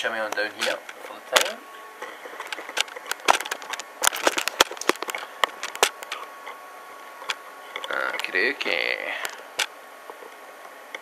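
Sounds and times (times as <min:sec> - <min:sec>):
faint steady high tone: 0:01.0 - 0:02.3.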